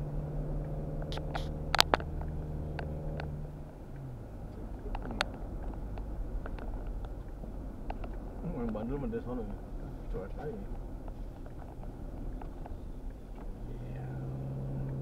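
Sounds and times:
car engine humming: 0.0 - 15.0
road rumble: 0.0 - 15.0
sharp clicks and knocks: 0.6 - 8.8.

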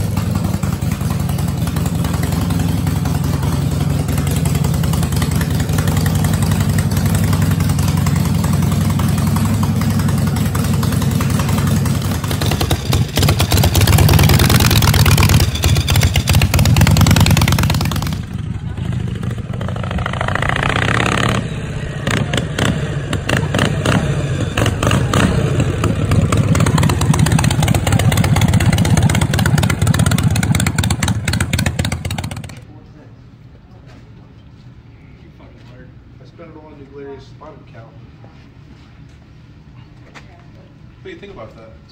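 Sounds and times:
motorcycle engine revving: 0.0 - 32.6
motorcycles pulling away: 0.0 - 32.6.

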